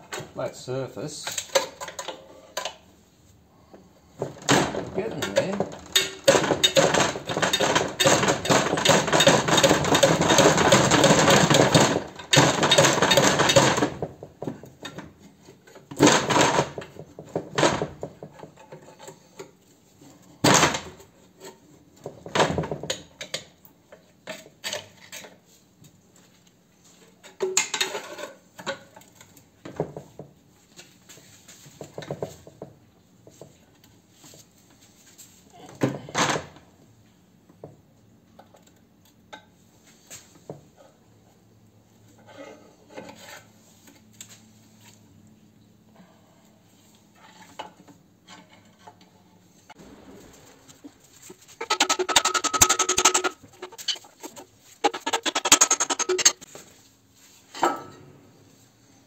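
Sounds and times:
metal tools clattering on metal: 0:51.6 - 0:56.5.

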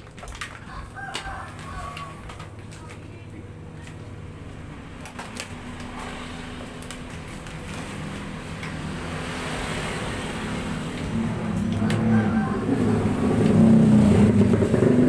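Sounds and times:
vinyl film crackling: 0:00.0 - 0:09.1.

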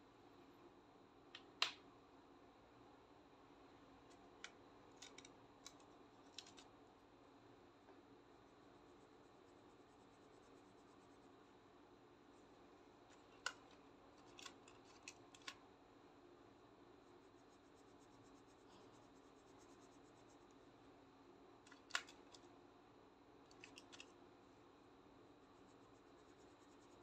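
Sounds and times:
marker caps clicking: 0:13.4 - 0:15.6, 0:21.7 - 0:22.4, 0:23.5 - 0:24.1
marker scratching on paper: 0:25.5 - 0:27.0.

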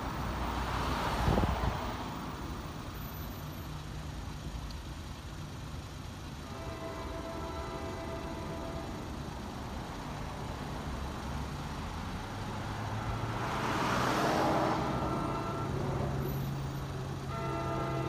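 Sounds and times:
vehicle passing by: 0:12.0 - 0:16.6.

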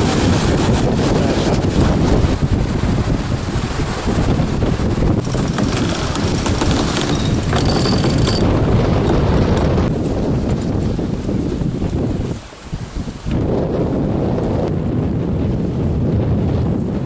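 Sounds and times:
sea waves breaking: 0:00.0 - 0:13.6
wind buffeting microphone: 0:00.0 - 0:17.0.

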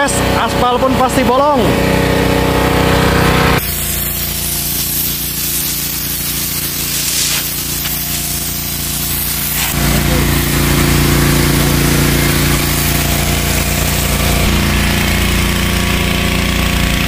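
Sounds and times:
pressure washer engine running: 0:00.0 - 0:17.0
water jet hissing on asphalt: 0:03.6 - 0:17.0.

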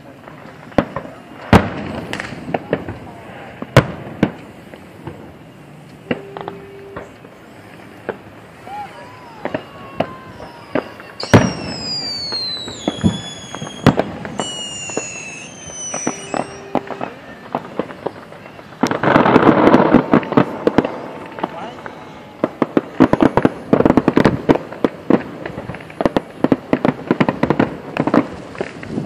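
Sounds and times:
fireworks crackling: 0:00.0 - 0:29.0
whistling fireworks: 0:00.0 - 0:29.0
fireworks shells bursting: 0:00.4 - 0:29.0
low steady tone: 0:05.2 - 0:08.5.

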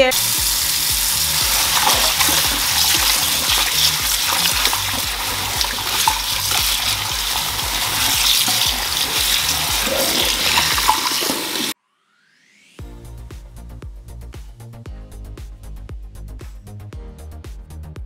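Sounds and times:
tap water running into a bowl: 0:00.1 - 0:11.8
hands rubbing chicken in water: 0:00.2 - 0:11.8.

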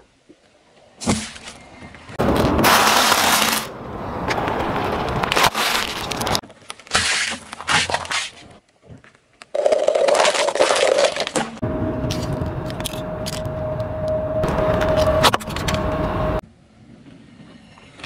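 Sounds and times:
car tyre crushing objects: 0:02.2 - 0:13.4.

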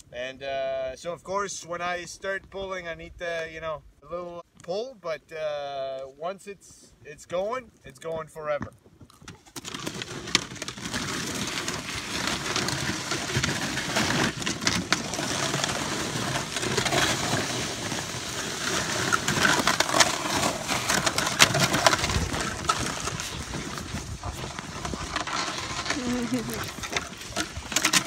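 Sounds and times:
sled skis scraping over snow: 0:09.5 - 0:28.0.

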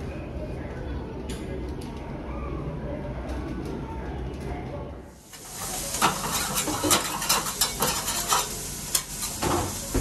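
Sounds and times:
food sizzling on a griddle: 0:05.2 - 0:10.0
metal spatulas clicking and scraping: 0:06.0 - 0:09.4.

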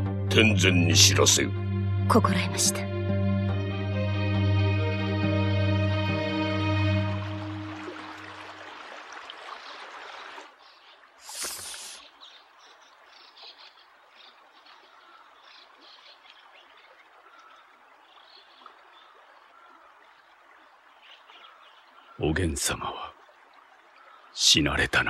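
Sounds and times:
stream running over rocks: 0:07.0 - 0:25.0.

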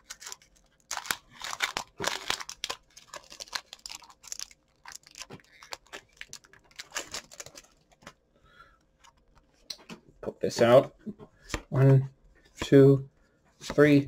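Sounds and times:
foil wrapper crinkling and tearing: 0:00.0 - 0:08.0.

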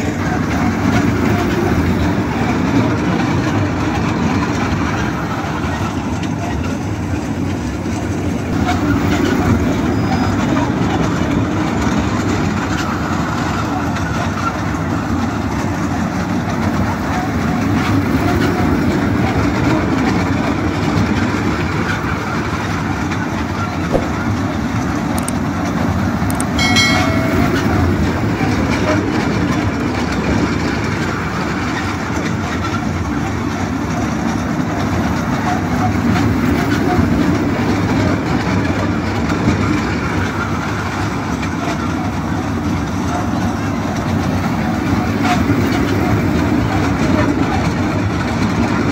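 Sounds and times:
ride-on train rumbling on rails: 0:00.0 - 0:48.9
brief high-pitched tone: 0:26.6 - 0:28.1.

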